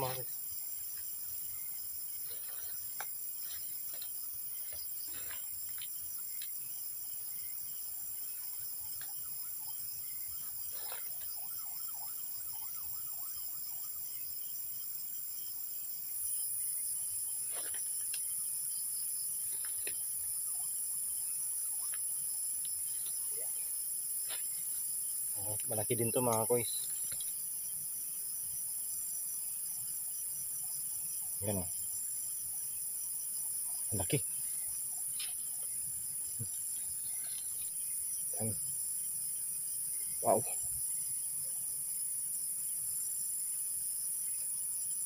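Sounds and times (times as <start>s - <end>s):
crickets chirping: 0.0s - 45.0s
leaves and twigs rustling: 2.0s - 6.8s.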